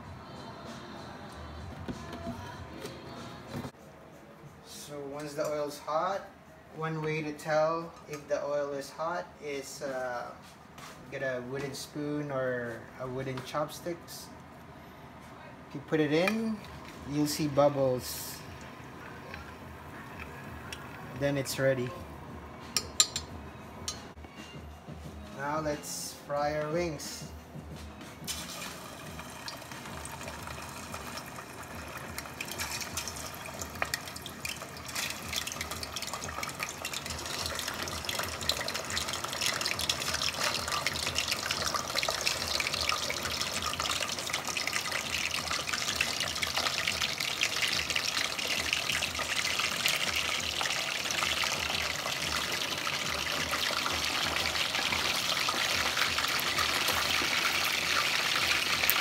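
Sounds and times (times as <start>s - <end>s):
chicken wings sizzling in oil: 28.3s - 59.0s.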